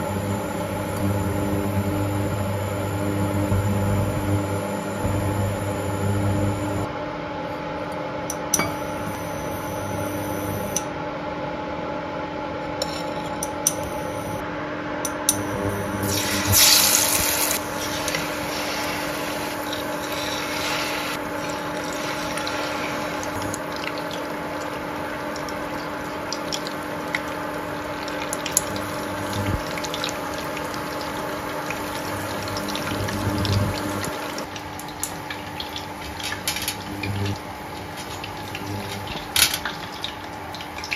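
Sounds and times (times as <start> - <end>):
steady low hum: 0.0 - 7.1, 12.8 - 40.6
fish deep-frying in oil: 15.4 - 40.9.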